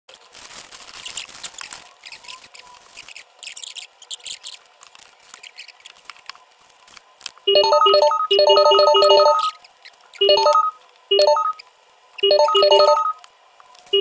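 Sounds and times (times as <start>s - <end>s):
paper wrappers crinkling and rustling: 0.1s - 7.5s.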